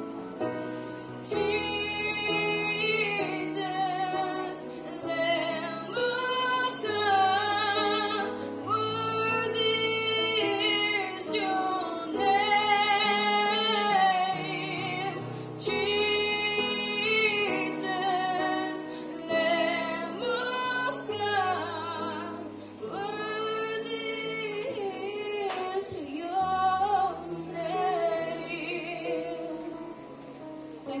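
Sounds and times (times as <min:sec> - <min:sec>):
woman singing into a microphone: 0:00.4 - 0:31.0.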